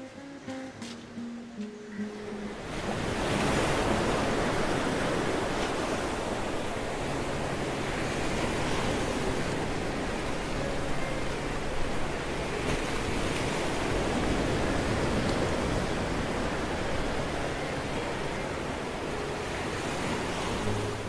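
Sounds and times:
guitar music: 0:00.0 - 0:05.4, 0:09.2 - 0:14.2, 0:16.5 - 0:21.0.

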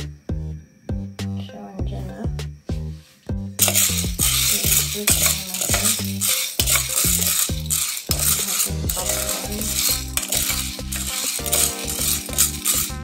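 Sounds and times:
spoon stirring kernels in pot: 0:03.6 - 0:13.0
music with bass beat: 0:07.6 - 0:13.0.

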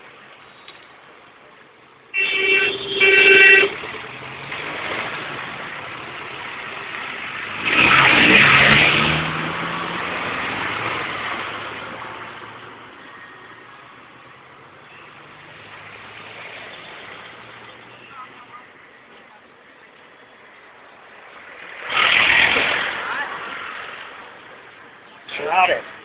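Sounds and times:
vehicle horn honking: 0:02.1 - 0:03.9
vehicle passing close by: 0:03.7 - 0:12.8, 0:21.4 - 0:24.5.

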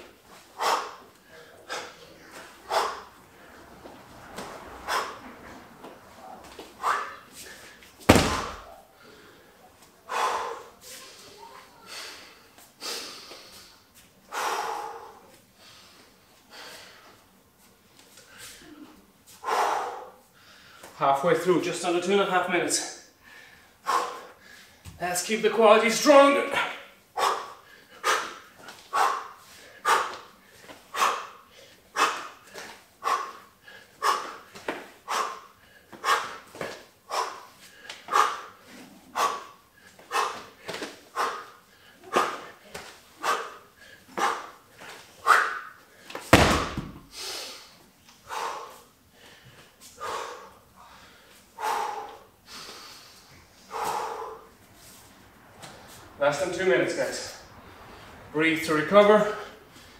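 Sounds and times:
man breathing hard: 0:00.0 - 0:11.0, 0:11.8 - 0:17.2, 0:19.3 - 0:21.0, 0:22.9 - 0:25.0, 0:26.5 - 0:46.3, 0:47.0 - 0:55.2, 0:59.2 - 0:59.9
snorting exhalations: 0:00.6 - 0:03.8, 0:51.6 - 0:54.6
heavy bag thudding on mat: 0:08.0 - 0:08.7, 0:46.3 - 0:47.1
man exhaling sharply: 0:50.0 - 0:54.5.

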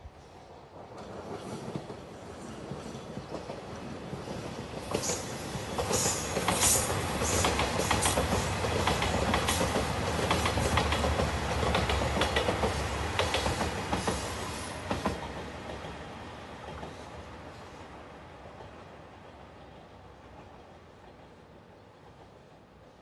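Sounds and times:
train wheels clattering: 0:01.0 - 0:16.0.

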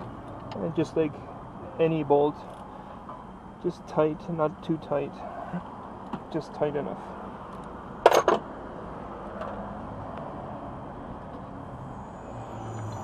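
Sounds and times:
outdoor background hum: 0:00.0 - 0:13.0
metal tool clattering on metal: 0:08.1 - 0:08.4
faint high whine: 0:11.7 - 0:13.0.

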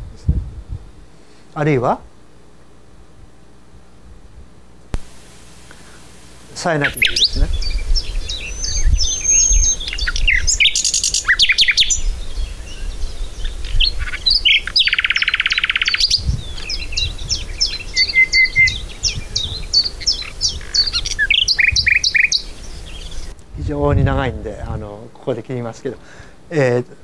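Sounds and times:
nightingale song over loudspeakers: 0:05.0 - 0:23.4
fast dense bird rattle: 0:06.5 - 0:23.3.

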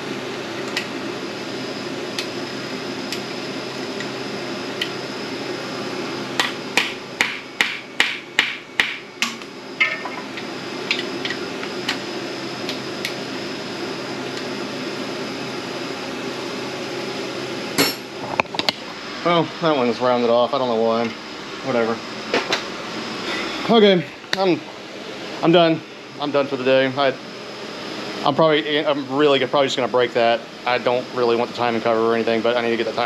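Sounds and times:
steady background hum: 0:00.0 - 0:33.0.

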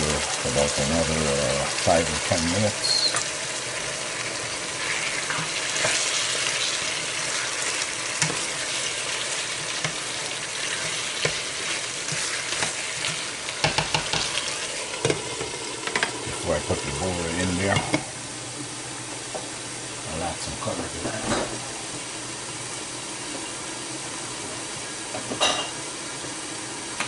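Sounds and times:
chicken sizzling in a frying pan: 0:00.0 - 0:27.0
spoon stirring: 0:04.8 - 0:15.5
spoon striking pan: 0:13.6 - 0:14.3.

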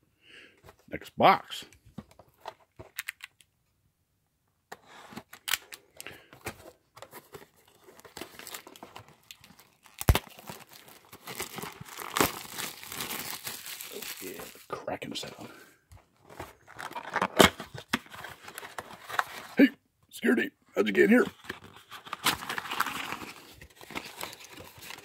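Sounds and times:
plastic wrap crinkling: 0:07.6 - 0:14.7.

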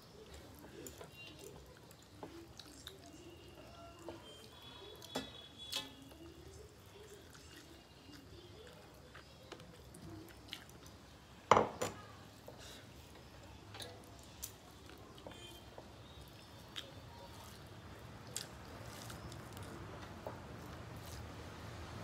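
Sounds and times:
fingers mixing rice and curry: 0:00.0 - 0:11.4, 0:12.2 - 0:22.0
dishes clinking: 0:11.5 - 0:12.1.

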